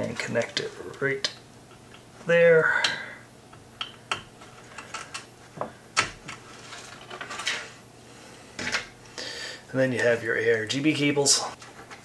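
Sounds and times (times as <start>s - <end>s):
wire rustling: 3.7s - 7.8s.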